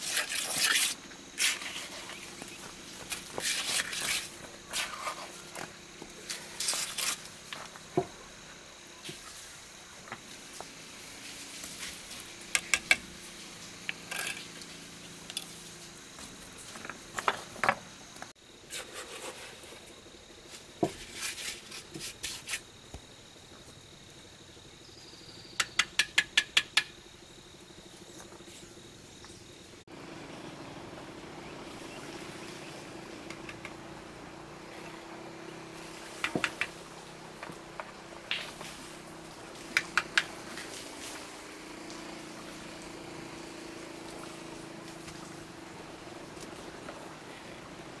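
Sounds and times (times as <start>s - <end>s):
sharp knocks and taps: 36.2s - 36.8s.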